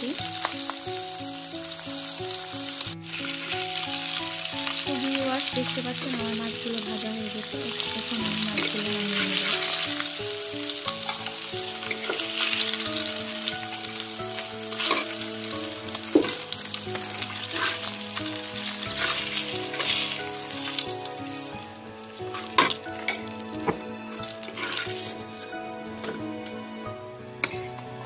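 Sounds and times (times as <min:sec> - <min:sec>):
fish sizzling in hot oil: 0:00.0 - 0:26.6
metal spatula scraping pan: 0:14.7 - 0:15.2, 0:17.2 - 0:18.0, 0:18.9 - 0:20.2, 0:24.4 - 0:25.2.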